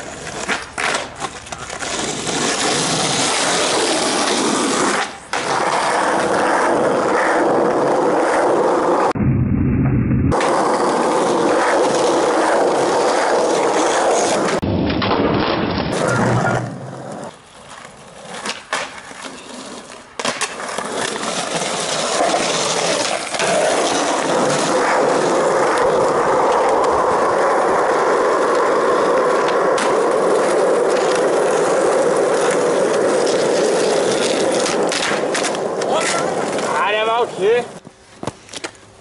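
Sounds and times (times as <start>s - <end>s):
skateboard wheels rolling on asphalt: 0.0s - 9.2s, 10.3s - 39.0s
skateboard knocking on ground: 28.4s - 31.4s, 32.4s - 36.7s, 37.8s - 38.8s.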